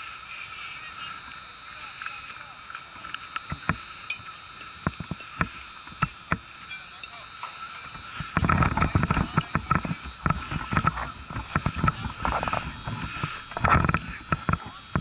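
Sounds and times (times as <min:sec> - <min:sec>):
scattered clicks: 0:02.0 - 0:15.0
rustling and knocking on microphone: 0:07.9 - 0:15.0.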